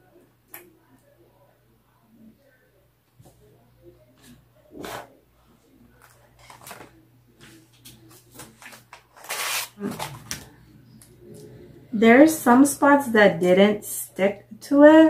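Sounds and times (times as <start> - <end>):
plastic pouches rustling: 8.2 - 10.5.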